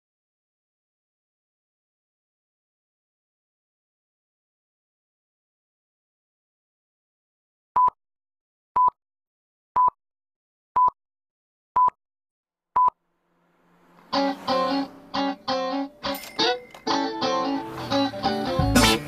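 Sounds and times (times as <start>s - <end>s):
short beeps: 12.8s - 13.0s
guitar music with strong beat: 14.1s - 19.0s.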